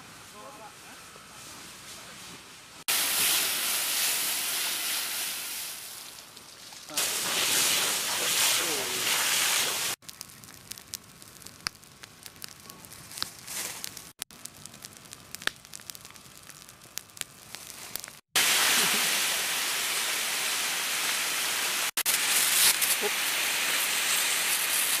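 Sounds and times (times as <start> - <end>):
brush fire crackling and popping: 2.8 - 25.0
fire hose spraying water: 2.9 - 10.9, 17.4 - 25.0.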